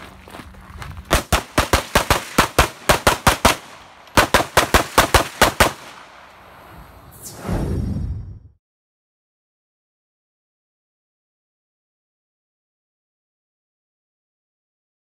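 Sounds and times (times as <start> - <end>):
pistol shots: 1.1 - 6.2
rush of low noise: 6.4 - 8.6.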